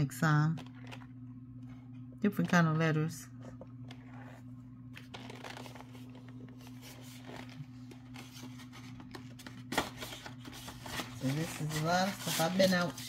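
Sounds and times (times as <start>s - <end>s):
steady low hum: 0.0s - 13.0s
packaging rustling and clicks: 0.6s - 1.1s, 5.0s - 12.3s.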